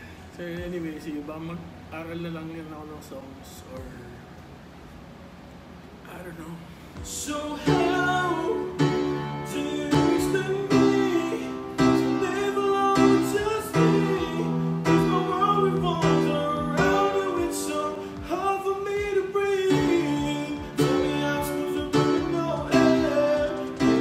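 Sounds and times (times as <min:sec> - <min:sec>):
man singing: 0:07.0 - 0:24.0.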